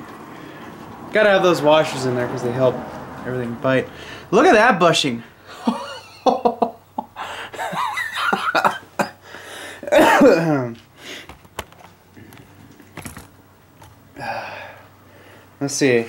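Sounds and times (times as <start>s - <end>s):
man coughing: 7.6s - 10.7s
metal parts clicking and knocking: 11.3s - 14.0s.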